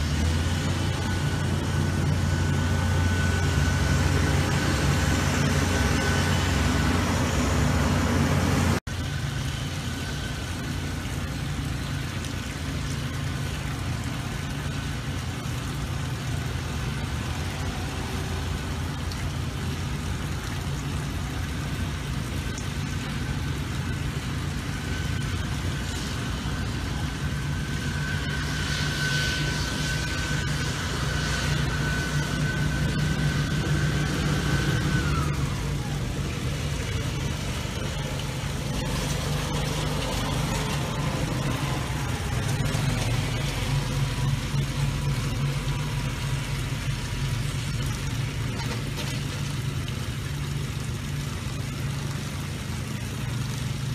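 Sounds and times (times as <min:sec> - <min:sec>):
thin high whine: 0:00.0 - 0:10.6, 0:23.6 - 0:47.7
aerator machine running: 0:00.0 - 0:53.9
ride-on mower engine: 0:00.0 - 0:53.9
walk-behind mowers: 0:25.8 - 0:50.0.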